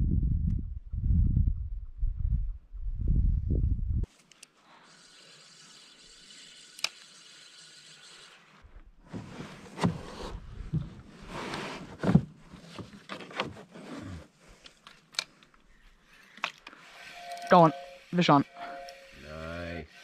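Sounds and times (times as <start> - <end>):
faint hiss: 4.2 - 8.6
handling scrapes and rustles: 8.3 - 19.0.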